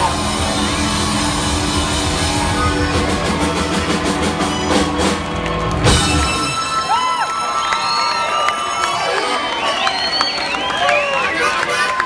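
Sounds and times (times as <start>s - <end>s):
live band playing: 0.0s - 7.7s.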